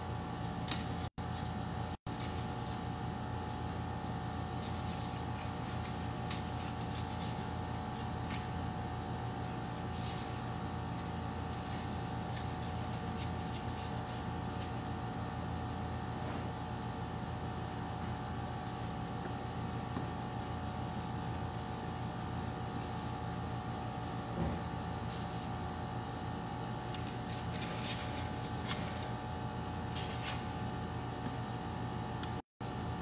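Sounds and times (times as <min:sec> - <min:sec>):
appliance hum: 0:00.0 - 0:33.0.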